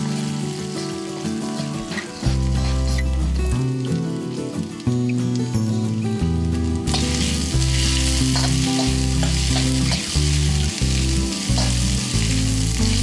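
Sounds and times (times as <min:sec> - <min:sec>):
onion sizzling in hot oil: 0:00.0 - 0:05.3, 0:06.3 - 0:13.0
background music: 0:00.0 - 0:13.0.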